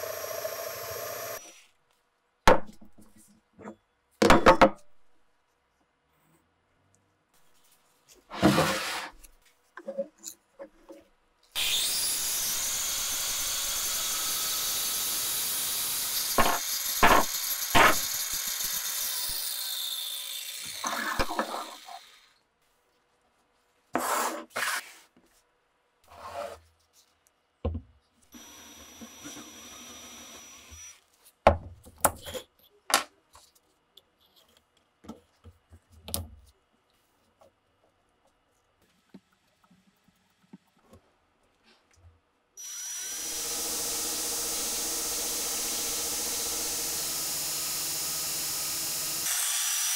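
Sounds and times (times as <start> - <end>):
cordless drill running: 0.0 - 1.4, 28.4 - 31.0, 42.6 - 49.9
power saw cutting wood: 0.0 - 1.4, 11.6 - 22.3, 42.6 - 49.9.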